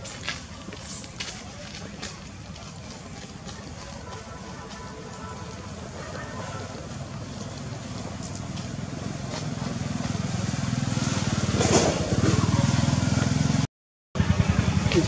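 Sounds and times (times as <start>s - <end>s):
vehicle engine throbbing: 6.8s - 15.0s.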